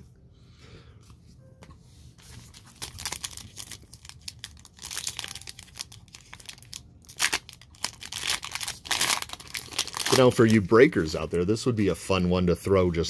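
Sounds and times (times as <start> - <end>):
foil wrapper crinkling: 2.2 - 11.3
foil wrapper tearing: 2.5 - 10.9.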